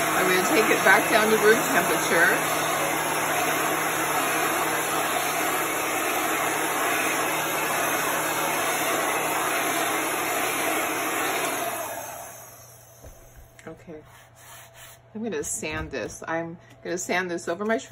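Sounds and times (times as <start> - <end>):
heat gun blowing air: 0.0 - 13.5.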